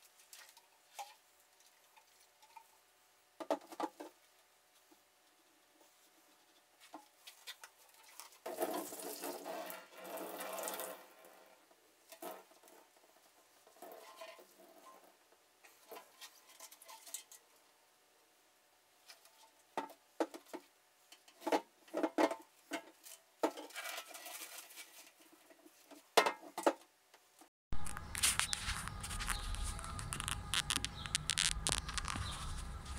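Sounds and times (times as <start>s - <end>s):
plastic wrap crinkling: 27.7s - 32.9s.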